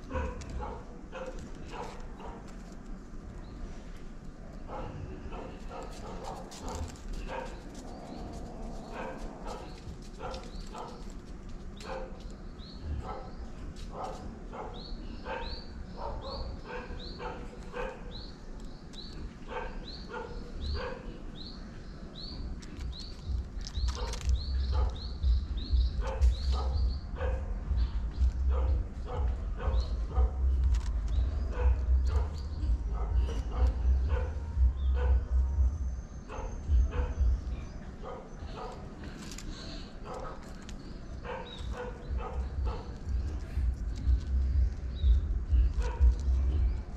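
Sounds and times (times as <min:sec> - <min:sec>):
dog barking: 0:00.0 - 0:02.5, 0:04.7 - 0:07.8, 0:08.8 - 0:11.1, 0:11.8 - 0:12.2, 0:12.9 - 0:18.2, 0:19.5 - 0:21.2, 0:23.9 - 0:25.1, 0:26.0 - 0:35.4, 0:36.2 - 0:38.9, 0:40.0 - 0:40.6, 0:41.2 - 0:44.2, 0:45.1 - 0:46.7
bird chirping: 0:04.6 - 0:46.9
low rumble: 0:22.4 - 0:37.8, 0:40.6 - 0:46.9.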